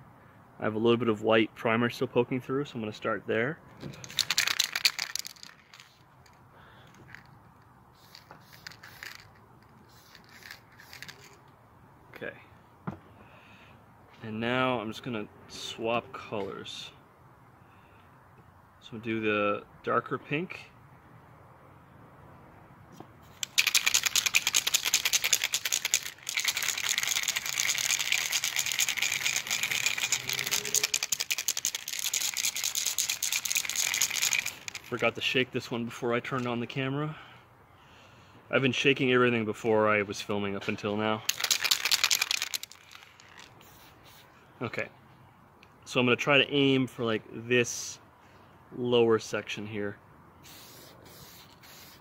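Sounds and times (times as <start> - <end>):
aerosol spray paint spurts: 8.0 - 11.4, 23.4 - 35.0, 41.3 - 44.2, 50.4 - 52.0.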